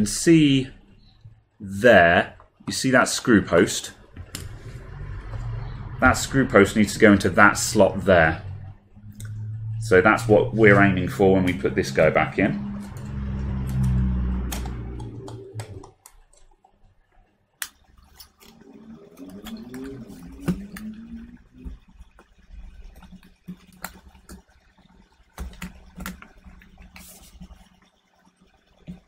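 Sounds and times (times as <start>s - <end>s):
low hum: 3.4s - 15.9s, 18.4s - 23.1s.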